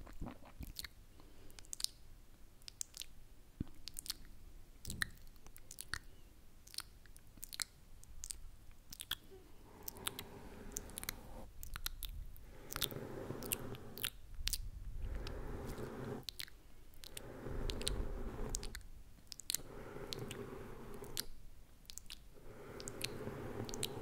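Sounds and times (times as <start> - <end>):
mouth clicks and lip smacks: 0.0 - 20.4, 21.0 - 24.0
brush swishing on microphone: 15.0 - 16.2, 17.2 - 18.7.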